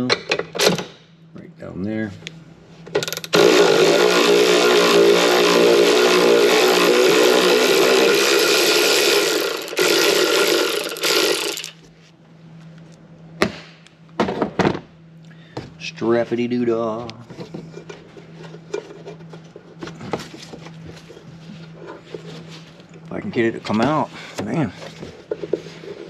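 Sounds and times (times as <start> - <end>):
cordless power tool running: 3.0 - 11.8.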